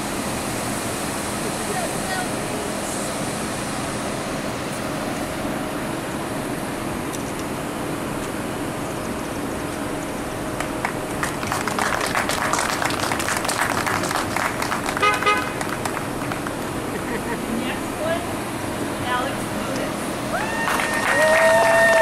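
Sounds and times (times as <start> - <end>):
cars idling: 0.0 - 22.0
people clapping: 10.5 - 17.0, 20.3 - 22.0
car horn honk: 15.0 - 15.7.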